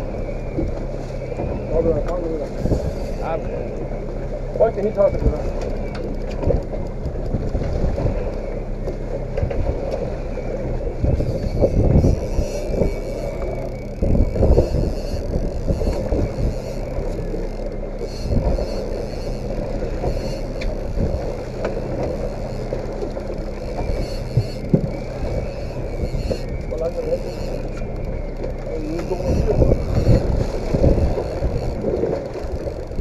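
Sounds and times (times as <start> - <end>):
outboard motor running: 0.0 - 33.0
sea wash: 0.0 - 33.0
wind buffeting the microphone: 0.0 - 33.0.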